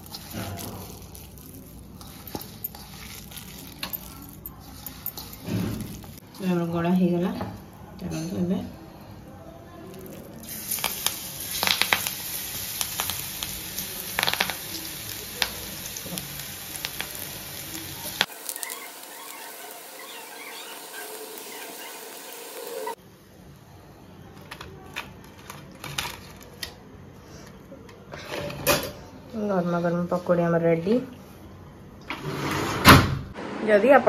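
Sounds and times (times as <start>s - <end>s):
oil popping and crackling: 0.0s - 6.6s, 9.8s - 23.0s
batter sizzling in hot oil: 0.0s - 8.4s, 9.8s - 23.0s.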